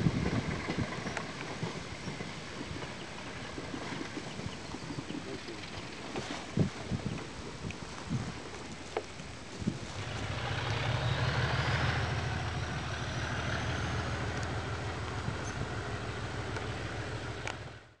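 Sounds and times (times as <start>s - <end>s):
diesel locomotive engine working hard: 9.9s - 18.0s
turbocharger whistle: 10.0s - 17.5s.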